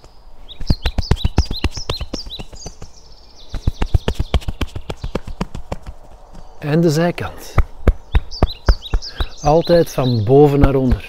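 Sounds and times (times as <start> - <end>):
hands patting chest: 0.0 - 2.9, 3.5 - 6.3, 7.4 - 9.5
small bird chirping: 0.0 - 11.0.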